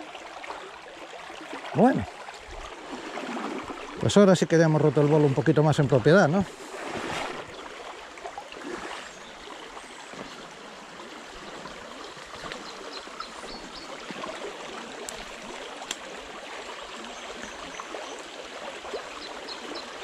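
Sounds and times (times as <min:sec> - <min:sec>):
stream trickling over stones: 0:00.0 - 0:20.0.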